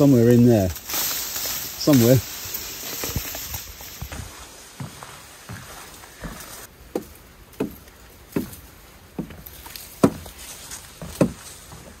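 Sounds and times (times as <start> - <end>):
footsteps on wooden boardwalk: 2.4 - 12.0.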